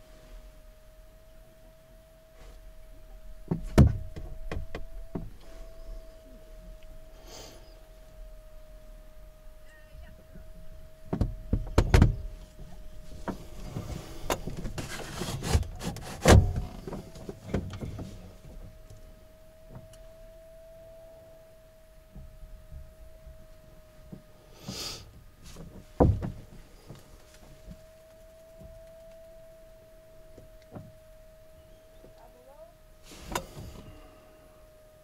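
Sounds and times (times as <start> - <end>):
knocks and thumps in cockpit: 3.1 - 5.4, 10.3 - 19.1, 25.6 - 27.9.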